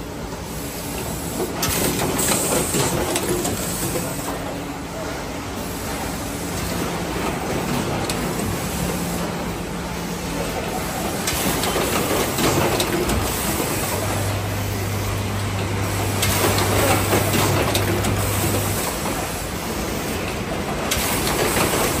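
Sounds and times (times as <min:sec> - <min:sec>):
machine clattering: 0:10.9 - 0:19.3, 0:20.2 - 0:22.0.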